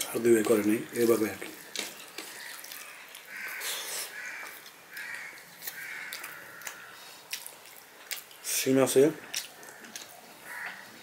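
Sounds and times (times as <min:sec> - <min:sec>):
hand mixing food on steel plate: 0:00.0 - 0:08.6.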